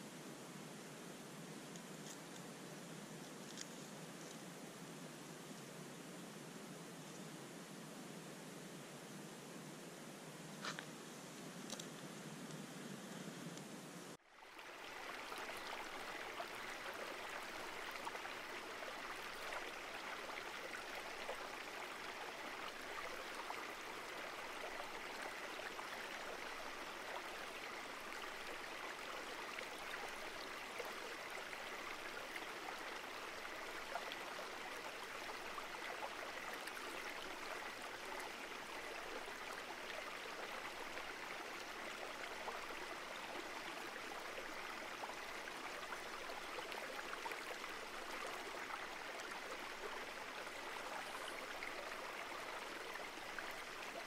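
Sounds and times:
river water rushing: 14.4 - 54.0.

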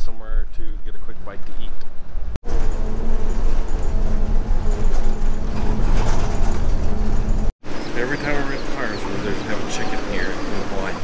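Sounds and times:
bus engine rumble and hum: 2.0 - 7.5.

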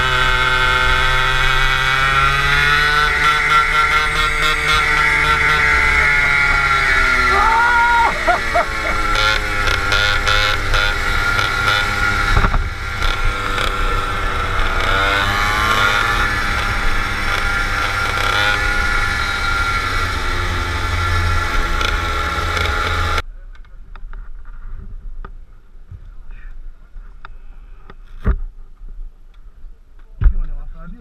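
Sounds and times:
go-kart engines running: 0.0 - 23.2.

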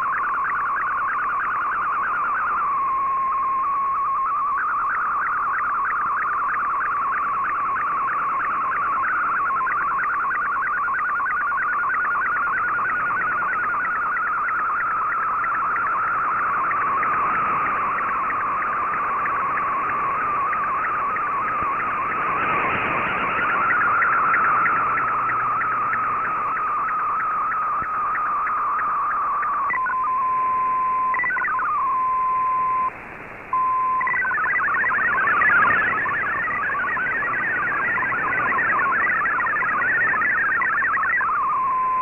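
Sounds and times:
warbling data signal tone: 0.0 - 42.0
radio band noise hiss: 12.2 - 42.0.

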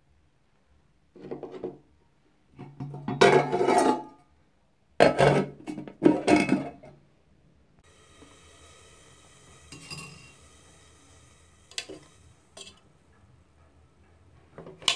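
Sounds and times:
metal pot and lid clattering: 2.7 - 4.2, 11.7 - 12.8, 14.6 - 14.9.

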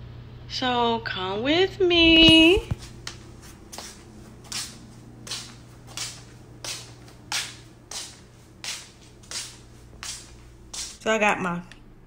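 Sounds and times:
footsteps scuffing on floor: 2.2 - 11.0.

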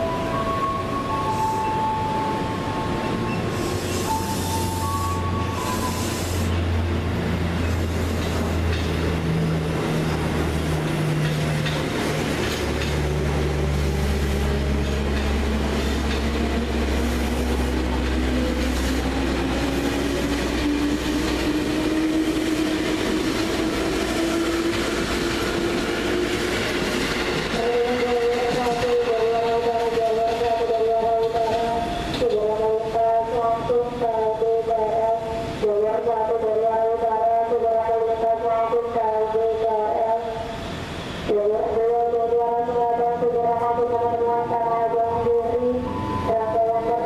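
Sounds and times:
train wheels rumbling on rails: 0.0 - 35.6.

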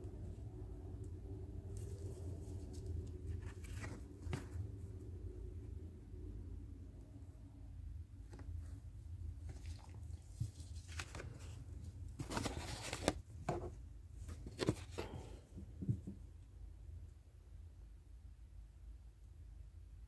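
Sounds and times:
paper tickets rustling: 12.2 - 13.2.

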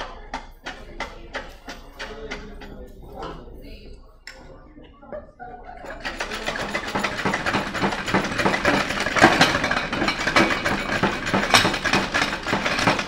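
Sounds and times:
metal clutch plates rattling: 5.9 - 13.0.

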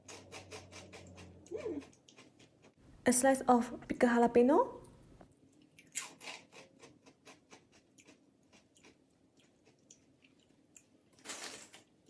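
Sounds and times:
crunchy chip being chewed: 5.7 - 12.0.

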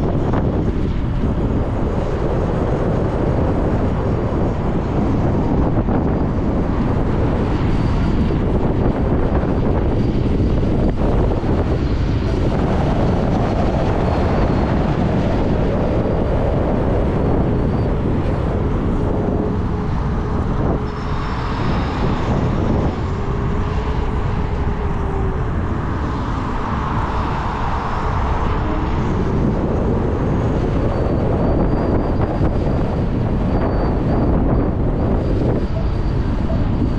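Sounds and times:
faint motor whine: 0.0 - 36.9
wind rushing over microphone: 0.0 - 36.9.

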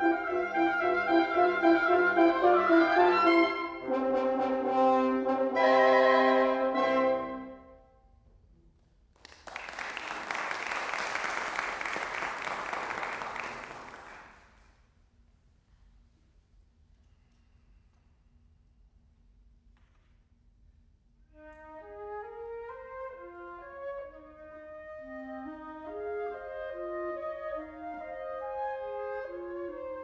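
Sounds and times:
woodwind quintet playing: 0.0 - 7.8, 21.3 - 30.0
audience applause: 9.2 - 14.6.

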